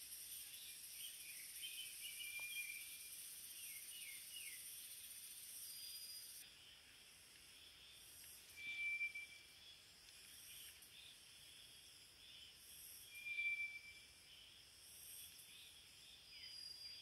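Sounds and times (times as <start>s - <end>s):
faint high insect trilling: 0.0s - 17.0s
bird giving long thin whistles: 8.6s - 9.4s, 13.1s - 14.0s.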